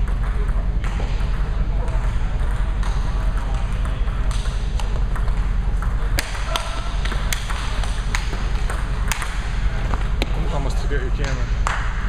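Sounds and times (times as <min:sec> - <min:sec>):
table tennis ball clicks: 0:04.2 - 0:09.4.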